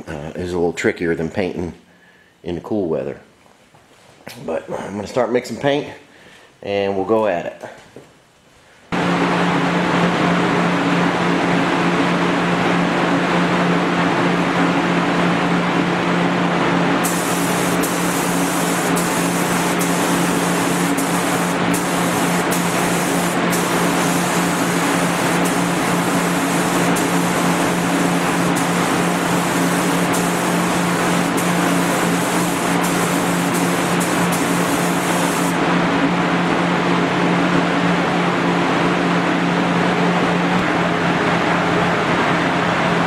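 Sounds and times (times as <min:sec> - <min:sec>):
low steady hum: 0:16.4 - 0:36.6
higher bright hiss: 0:17.0 - 0:35.6
spray gun hissing: 0:17.0 - 0:35.6.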